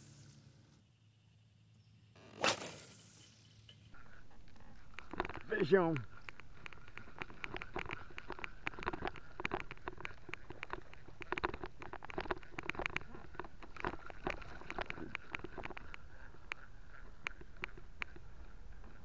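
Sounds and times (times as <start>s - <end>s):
fishing reel clicking and tapping: 6.1s - 18.2s.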